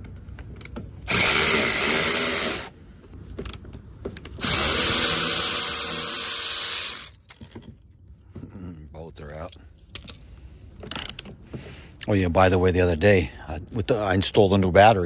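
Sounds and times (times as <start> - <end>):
electric ratchet motor whirring: 1.1 - 2.8, 4.4 - 7.2.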